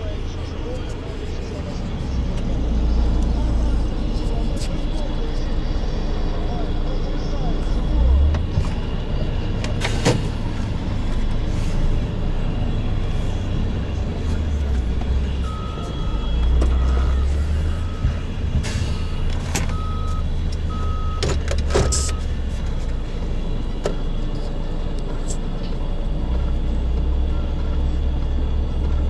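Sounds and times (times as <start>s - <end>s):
diesel engines rumbling: 0.0s - 29.0s
reversing alarm beeping: 14.4s - 25.3s.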